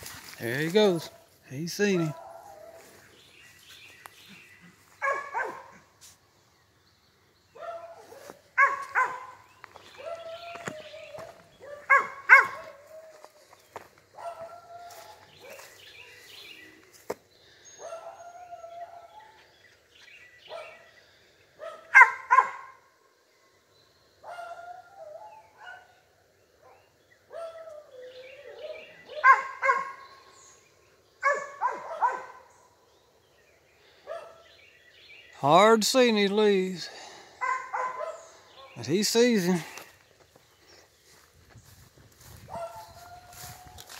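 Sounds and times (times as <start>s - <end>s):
dog barking: 1.9s - 2.9s, 5.0s - 5.8s, 7.6s - 10.6s, 11.6s - 13.0s, 14.2s - 15.8s, 17.8s - 19.4s, 20.5s - 20.9s, 21.6s - 22.8s, 24.2s - 25.9s, 26.6s - 30.0s, 31.2s - 32.5s, 34.0s - 34.4s, 37.4s - 38.8s, 42.5s - 43.6s
dog howling barks: 1.9s - 3.0s, 5.0s - 5.8s, 7.6s - 13.5s, 14.1s - 15.7s, 17.8s - 19.4s, 21.6s - 22.8s, 24.2s - 25.9s, 26.6s - 30.1s, 31.2s - 32.5s, 37.4s - 38.8s, 42.5s - 43.9s.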